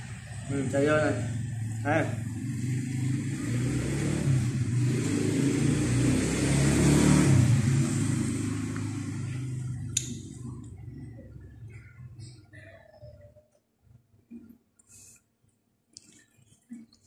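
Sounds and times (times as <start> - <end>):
vehicle engine running: 0.0 - 13.1
sharp click: 10.0 - 10.2.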